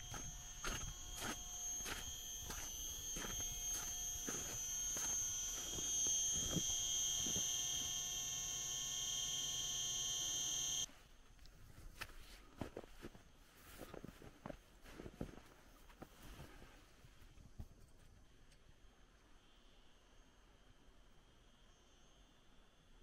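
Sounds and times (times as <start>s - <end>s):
footsteps on snow: 0.0s - 7.9s, 10.9s - 17.3s
high-pitched electrical whine: 0.0s - 10.9s.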